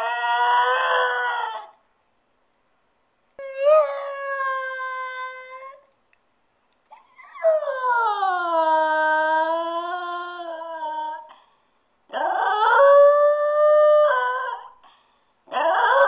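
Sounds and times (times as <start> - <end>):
small dog howling: 0.0 - 1.8, 3.4 - 5.9, 6.9 - 11.3, 12.1 - 14.8, 15.5 - 16.0.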